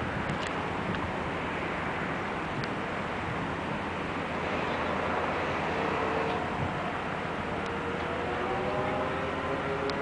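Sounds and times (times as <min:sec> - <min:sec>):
wind hiss on microphone: 0:00.0 - 0:07.6.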